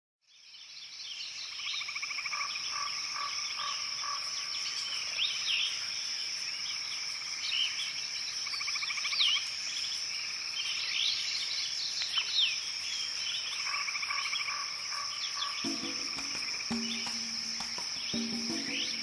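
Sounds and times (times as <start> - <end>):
insect drone: 0.4 - 19.0
bird chirps: 15.1 - 19.0
rhythmic trilling calls: 15.4 - 19.0.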